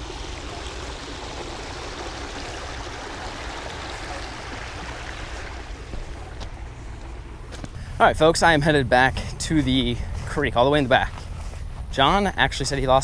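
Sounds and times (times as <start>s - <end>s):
creek water running over rocks: 0.0s - 7.7s.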